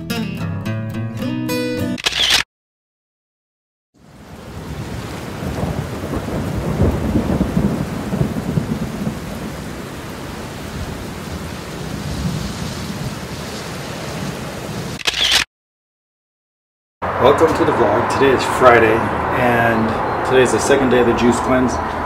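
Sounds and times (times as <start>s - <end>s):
rain on stone: 4.0s - 15.0s.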